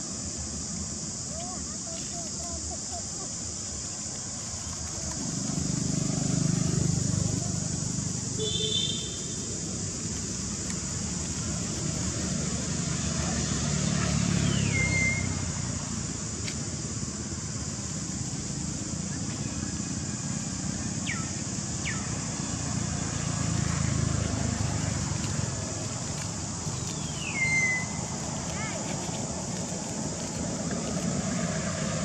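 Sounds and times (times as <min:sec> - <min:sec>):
rumble of passing vehicles: 0:00.0 - 0:32.0
steady high hiss: 0:00.0 - 0:32.0
whistled calls gliding downward: 0:14.2 - 0:15.7, 0:21.0 - 0:23.4, 0:26.7 - 0:28.7.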